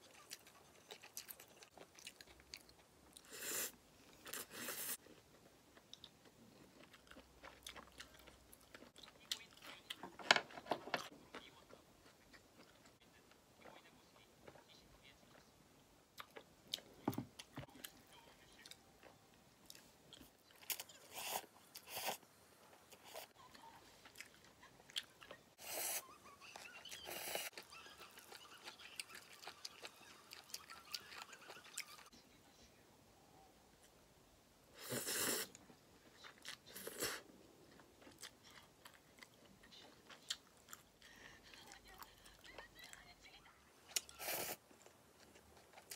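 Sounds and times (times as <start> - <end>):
chewing: 0.0 - 3.4, 4.1 - 10.1, 16.2 - 32.1, 34.9 - 43.1, 43.9 - 45.9.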